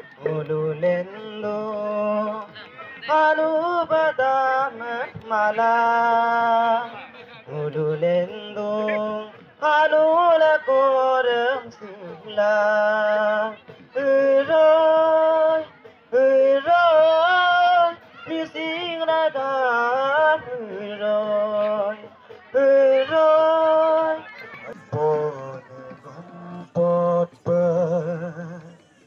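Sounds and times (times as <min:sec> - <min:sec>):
person singing through pa: 0:00.0 - 0:29.0.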